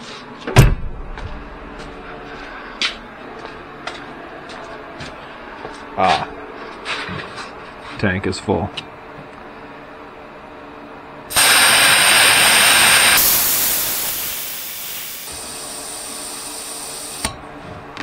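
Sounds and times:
valve click: 0:11.3 - 0:15.5
compressed air hissing from valve: 0:11.3 - 0:17.2.

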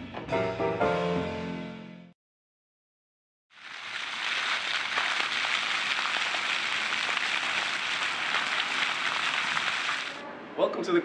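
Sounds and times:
fountain water splashing: 0:03.5 - 0:10.2.

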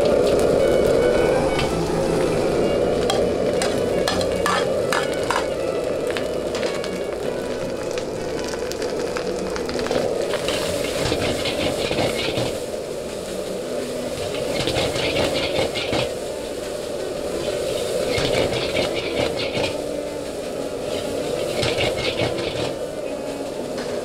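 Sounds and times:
steady rushing noise: 0:00.0 - 0:24.0
food sizzling in a wok: 0:02.5 - 0:23.8
utensil knocking and scraping pan: 0:03.1 - 0:05.5.

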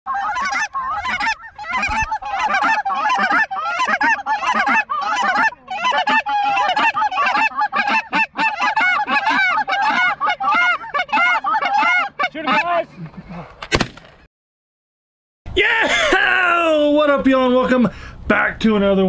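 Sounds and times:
geese honking and clucking: 0:00.1 - 0:13.6.

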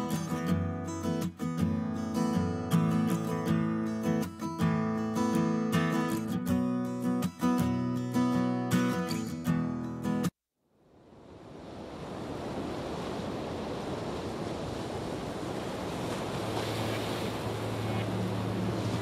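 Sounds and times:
ocean waves breaking: 0:11.0 - 0:19.0.

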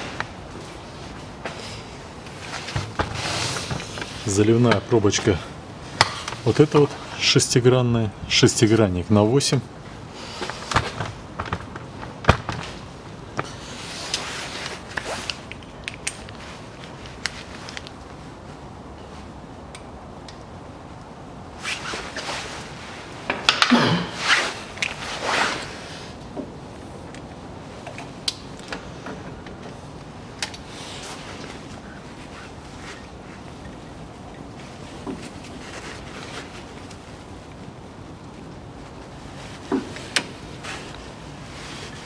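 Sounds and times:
scraping and rustling: 0:00.0 - 0:05.4.

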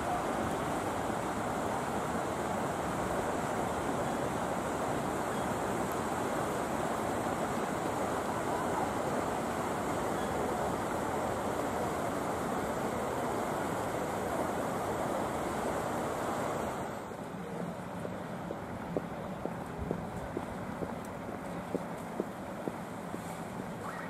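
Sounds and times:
rushing wind: 0:00.0 - 0:17.1.

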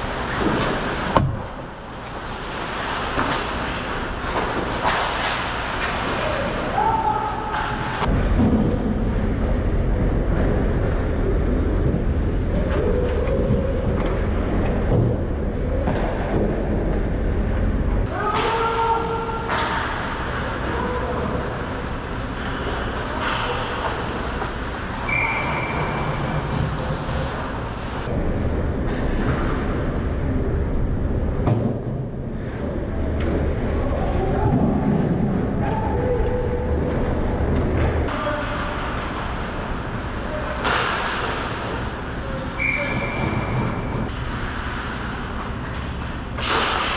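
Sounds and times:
skates scraping on ice: 0:00.0 - 0:07.0
low rumble of skating on ice: 0:00.0 - 0:46.9.

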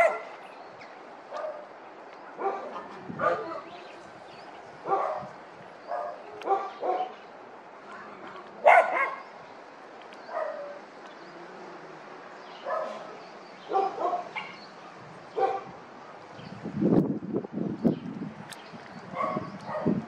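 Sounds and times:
dog barking: 0:00.0 - 0:00.4, 0:01.3 - 0:01.7, 0:02.4 - 0:03.8, 0:04.8 - 0:05.3, 0:05.9 - 0:07.2, 0:08.6 - 0:09.2, 0:10.3 - 0:10.8, 0:12.6 - 0:13.1, 0:13.7 - 0:14.6, 0:15.3 - 0:15.8, 0:19.1 - 0:20.0.

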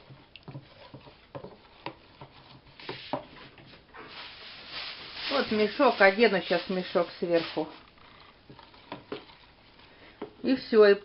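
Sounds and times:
whisk scraping plastic bowl: 0:00.0 - 0:10.6
rustle: 0:04.0 - 0:07.8.

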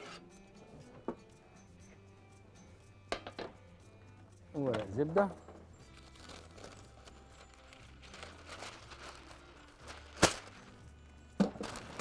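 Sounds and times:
baking paper rustling: 0:06.2 - 0:10.6
paper snapping: 0:10.2 - 0:10.5.

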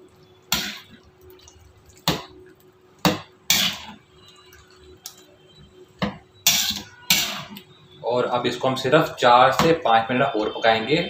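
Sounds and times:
metal spatula scraping pan: 0:03.5 - 0:04.0, 0:06.4 - 0:07.6.

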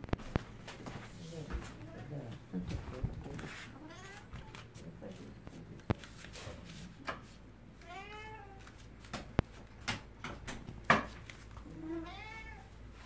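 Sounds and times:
cat meowing: 0:03.8 - 0:04.5, 0:07.8 - 0:08.6, 0:11.6 - 0:12.7
sharp knocks and clicks: 0:09.1 - 0:11.2.

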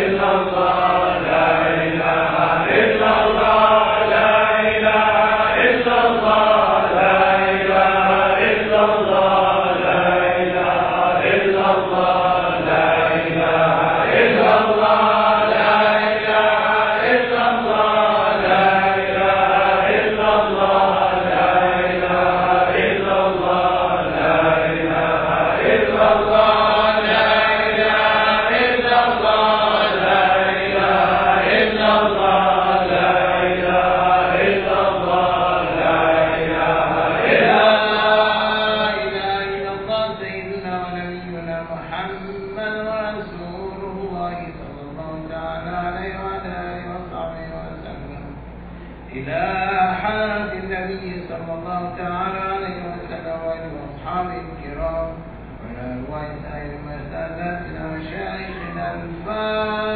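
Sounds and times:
voices chanting: 0:00.0 - 0:39.9.

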